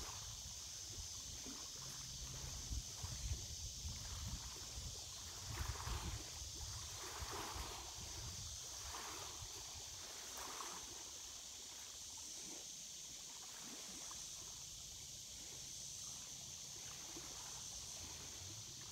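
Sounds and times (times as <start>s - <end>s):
steady high hiss: 0.0s - 18.9s
water lapping: 4.0s - 18.9s.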